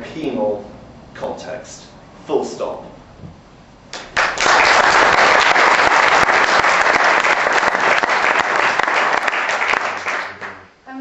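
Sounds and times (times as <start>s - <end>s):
audience applauding: 3.9s - 10.7s.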